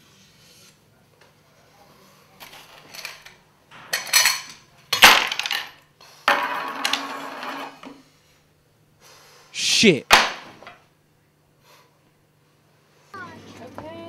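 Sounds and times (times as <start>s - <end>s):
coins rattling in tin: 2.4s - 5.7s
coins clinking: 2.4s - 5.8s
coins clattering: 2.4s - 7.8s.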